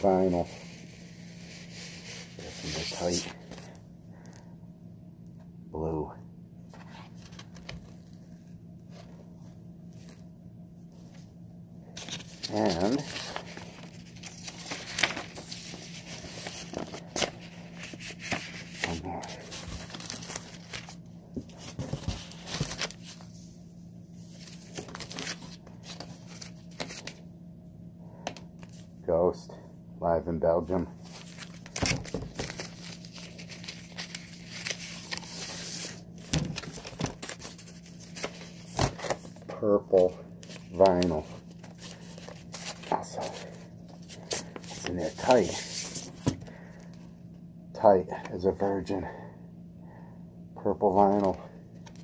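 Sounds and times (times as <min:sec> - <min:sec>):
paper and card rustling: 0:00.0 - 0:03.8, 0:06.7 - 0:09.2, 0:11.9 - 0:23.5, 0:24.2 - 0:27.2, 0:31.0 - 0:47.0, 0:50.9 - 0:52.0
faint steady hum: 0:00.0 - 0:52.0.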